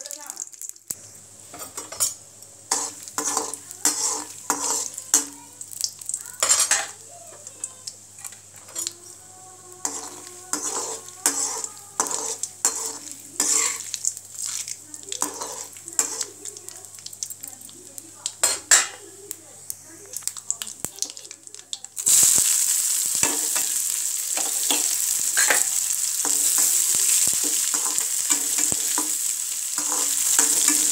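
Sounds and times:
hot fat sizzling and popping: 0:00.0 - 0:30.9
metal spatula scraping pan: 0:01.6 - 0:05.4, 0:06.4 - 0:07.0, 0:09.8 - 0:13.9, 0:15.2 - 0:16.4, 0:24.4 - 0:30.9.

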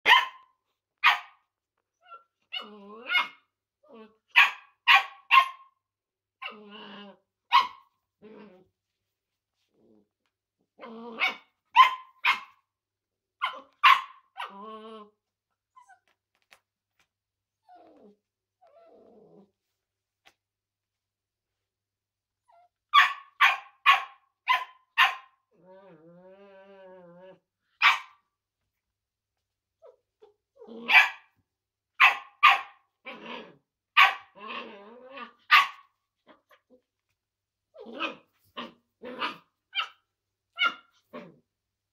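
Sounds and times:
puppy barking: 0:00.0 - 0:01.4, 0:02.1 - 0:03.5, 0:04.3 - 0:05.8, 0:07.5 - 0:07.9, 0:11.2 - 0:12.6, 0:13.4 - 0:14.5, 0:22.9 - 0:25.4, 0:27.8 - 0:28.2, 0:30.8 - 0:31.3, 0:32.0 - 0:32.9, 0:34.0 - 0:34.4, 0:35.3 - 0:36.6, 0:37.9 - 0:40.0, 0:40.6 - 0:41.2
puppy growling: 0:02.5 - 0:04.3, 0:06.4 - 0:07.3, 0:08.2 - 0:08.7, 0:09.6 - 0:11.5, 0:14.4 - 0:15.2, 0:17.6 - 0:19.8, 0:25.5 - 0:27.5, 0:30.2 - 0:31.2, 0:33.0 - 0:37.1, 0:37.7 - 0:40.0, 0:40.6 - 0:41.4.

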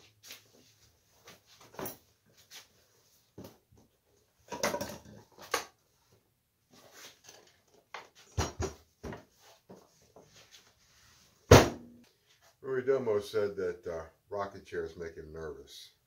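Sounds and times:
deep thump: 0:11.5 - 0:11.9.

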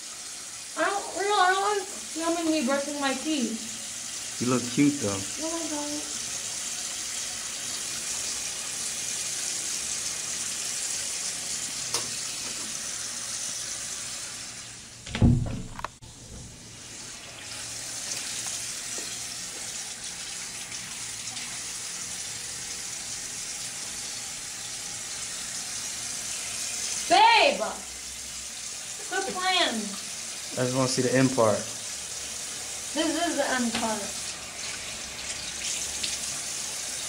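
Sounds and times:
faucet water running into sink: 0:00.0 - 0:37.0
loud thump: 0:15.1 - 0:15.8.

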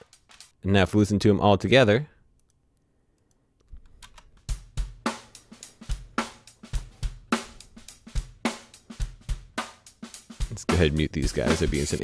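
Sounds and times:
drum kit playing steady beat: 0:04.4 - 0:12.0.

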